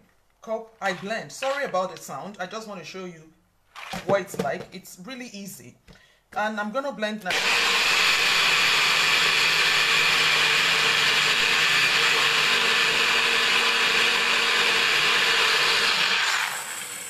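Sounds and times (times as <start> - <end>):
blender running: 7.3 - 17.0.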